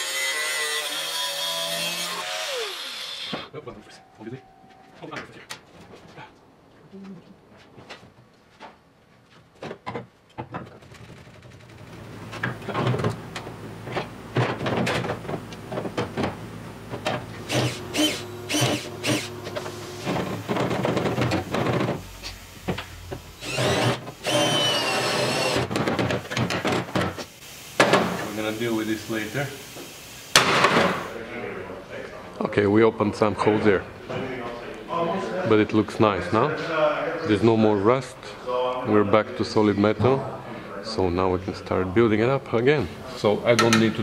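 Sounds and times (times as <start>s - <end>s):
power tool grinding sheet steel: 0.0s - 3.5s, 17.4s - 21.9s, 23.4s - 25.7s.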